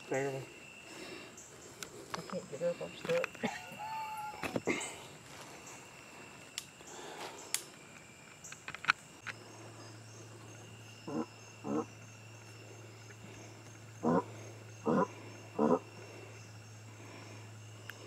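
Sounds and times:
steady low hum: 0:00.0 - 0:18.0
clicks and rustles: 0:07.5 - 0:09.4
hog grunting: 0:11.1 - 0:11.9, 0:14.0 - 0:15.8.

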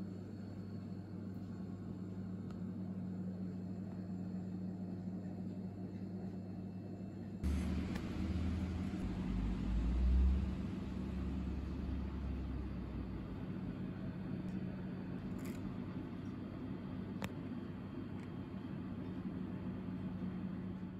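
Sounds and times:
steady hum: 0:00.0 - 0:20.9
low rumble: 0:07.4 - 0:13.8.

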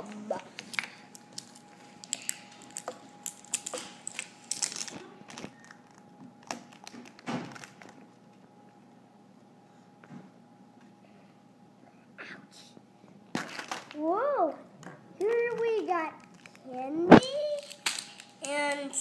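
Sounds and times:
plastic egg clicks and rustles: 0:00.1 - 0:08.0, 0:13.3 - 0:14.1, 0:14.8 - 0:19.0.

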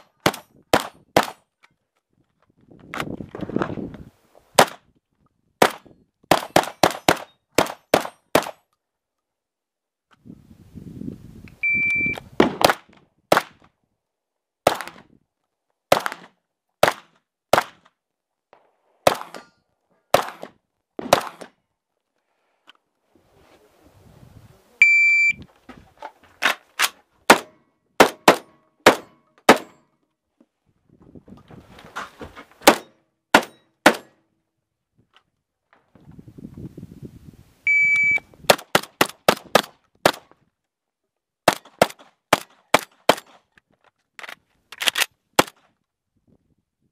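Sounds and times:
shotgun shots: 0:00.0 - 0:01.4, 0:05.6 - 0:08.6, 0:12.4 - 0:13.6, 0:14.6 - 0:15.0, 0:15.9 - 0:17.8, 0:19.0 - 0:19.4, 0:20.1 - 0:21.5, 0:27.3 - 0:29.8, 0:32.6 - 0:34.2
shot timer beep: 0:11.6 - 0:12.2, 0:24.8 - 0:25.4, 0:37.7 - 0:38.3.

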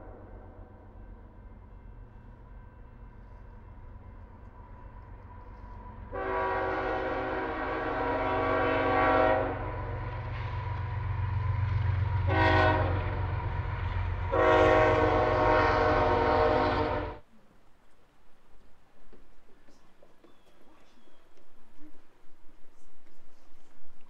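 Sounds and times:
train rumbling past: 0:00.0 - 0:17.3
locomotive air horn blasts: 0:06.1 - 0:10.0, 0:12.2 - 0:13.4, 0:14.2 - 0:17.2.

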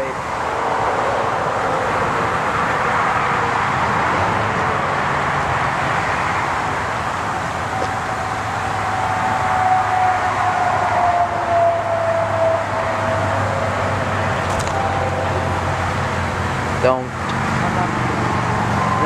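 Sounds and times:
freight train rolling past: 0:07.8 - 0:18.6.

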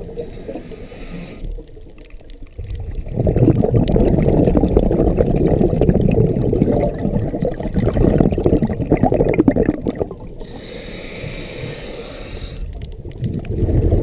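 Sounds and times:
regulator inhalation hiss: 0:00.0 - 0:01.5, 0:10.4 - 0:12.7
bubbles gurgling underwater: 0:01.5 - 0:10.5, 0:12.6 - 0:14.0.

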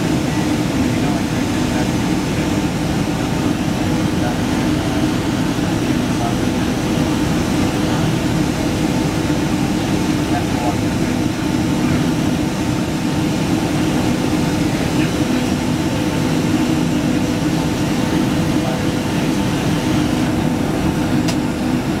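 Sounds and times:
jet engines roaring: 0:00.0 - 0:22.0
low cabin hum: 0:00.0 - 0:22.0.

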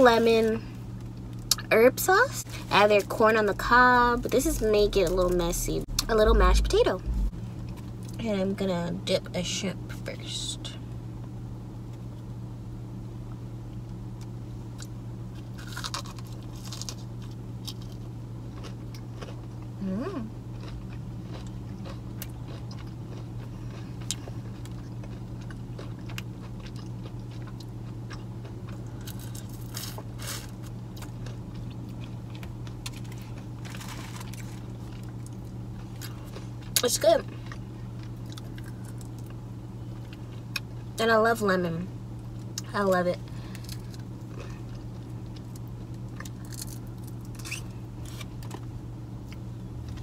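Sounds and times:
steady low hum: 0:00.0 - 0:50.0
chewing crunchy food: 0:14.2 - 0:41.0, 0:43.3 - 0:50.0
person humming: 0:19.8 - 0:20.3.

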